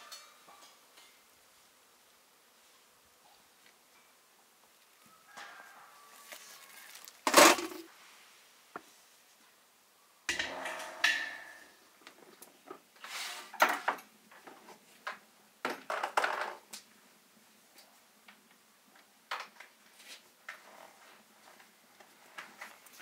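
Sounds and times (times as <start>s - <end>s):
metal baking tray clattering: 10.3s - 11.8s.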